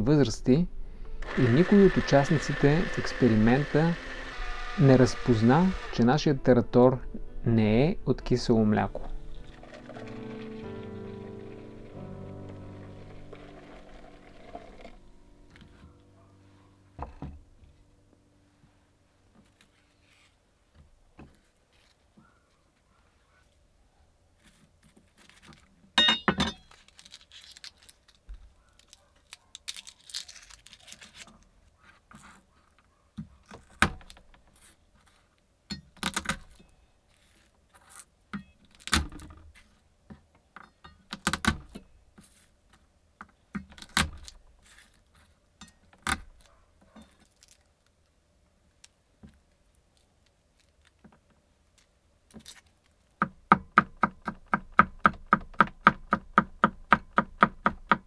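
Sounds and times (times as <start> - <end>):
papery garlic skins rustling: 24.4 - 26.0, 26.6 - 32.7, 36.4 - 38.9, 43.8 - 45.4, 46.3 - 48.1.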